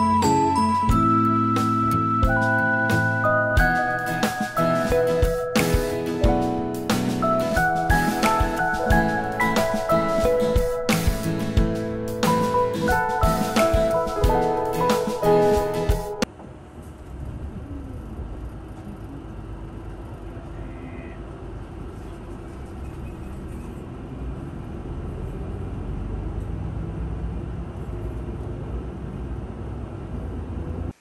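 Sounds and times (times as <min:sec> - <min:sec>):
vehicle engine rumbling: 0:16.2 - 0:30.9.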